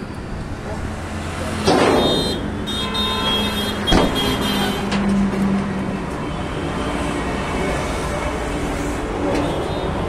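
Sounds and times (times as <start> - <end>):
loud bangs: 1.5 - 2.7.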